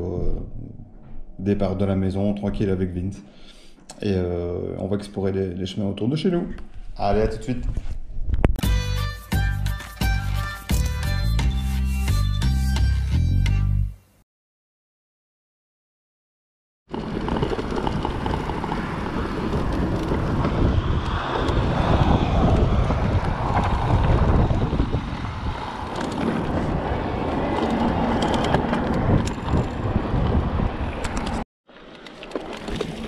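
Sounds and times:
wind buffeting microphone: 0:16.9 - 0:31.4
bike rattling: 0:16.9 - 0:33.0
tyres rolling over grass and asphalt: 0:16.9 - 0:33.0.

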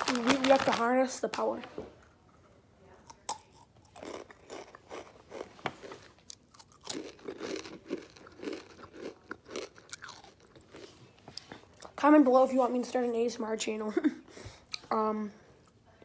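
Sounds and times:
tortilla chip crunching: 0:03.0 - 0:10.9.

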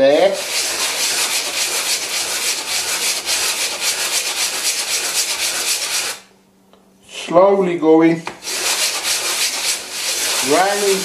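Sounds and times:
wood rubbed on coarse sandpaper: 0:00.1 - 0:06.2, 0:08.4 - 0:11.0.

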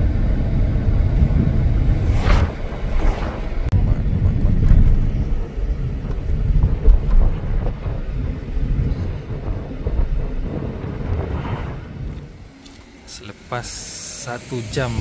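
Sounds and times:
car interior road rumble: 0:00.0 - 0:11.4
wind buffeting microphone: 0:00.0 - 0:13.3.

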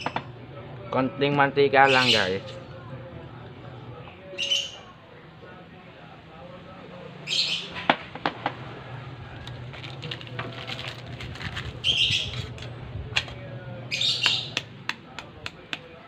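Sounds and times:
shrill chirp-like bursts: 0:01.8 - 0:02.4
steady low hum: 0:02.4 - 0:07.3, 0:08.1 - 0:16.0.

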